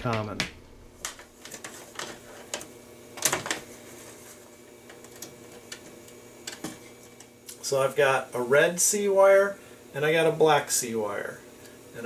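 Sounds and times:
wires clicking and scraping in metal panel: 1.0s - 7.3s.

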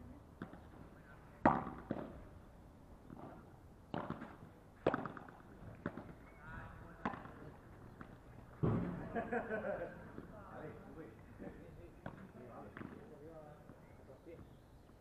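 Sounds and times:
rackets striking ball: 0.4s - 0.8s, 1.4s - 2.3s, 3.0s - 9.1s, 11.4s - 13.8s
ball bouncing on court: 1.4s - 2.2s, 3.1s - 6.2s, 7.0s - 9.0s, 12.0s - 13.0s.

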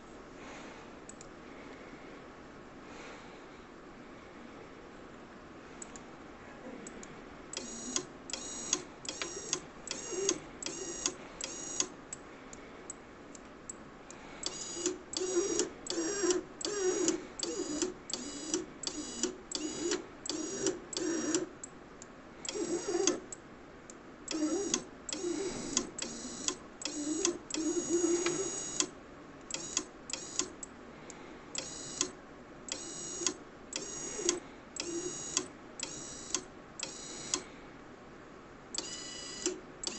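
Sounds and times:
conveyor short mechanical buzzes: 7.5s - 12.0s, 14.4s - 21.5s, 22.4s - 23.3s, 24.3s - 28.9s, 29.5s - 30.6s, 31.6s - 37.6s, 38.8s - 39.9s.

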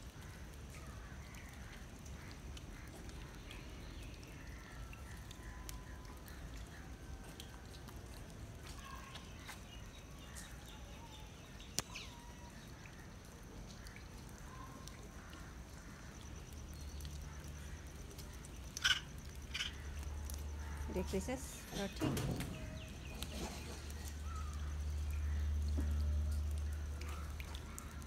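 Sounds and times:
distant bird calls: 13.7s - 28.0s.

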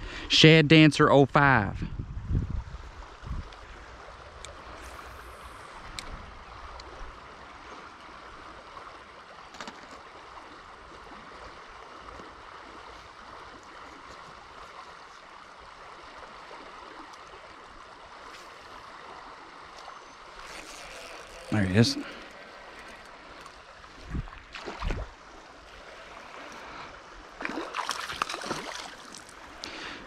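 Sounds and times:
river water rushing: 6.6s - 30.0s.

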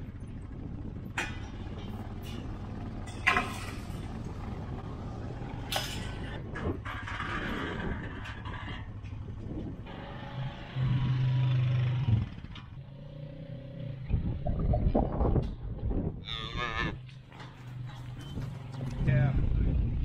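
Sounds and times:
atv engine running: 0.0s - 20.0s
cattle mooing: 16.2s - 17.1s.

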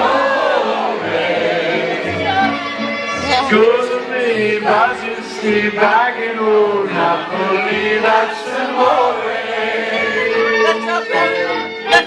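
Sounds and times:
band instrumental backing: 0.0s - 12.0s
person singing: 2.0s - 9.2s, 9.9s - 12.0s.

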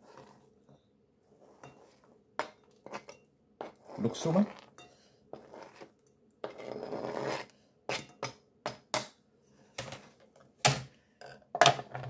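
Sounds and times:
knife scraping cutting board: 0.0s - 0.4s, 2.8s - 4.7s, 5.3s - 8.1s.

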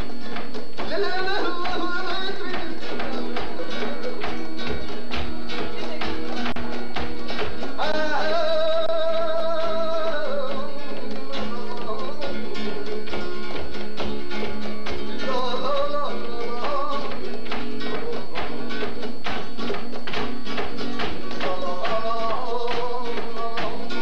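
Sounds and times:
guitar strumming: 0.0s - 24.0s
rhythmic hand clapping: 0.0s - 24.0s
person singing long notes: 7.8s - 12.6s.

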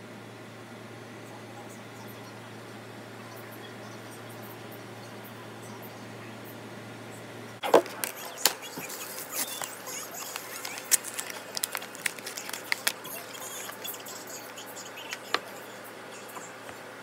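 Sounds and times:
steady low hum: 0.0s - 17.0s
small objects clicking and rustling: 7.7s - 14.0s.

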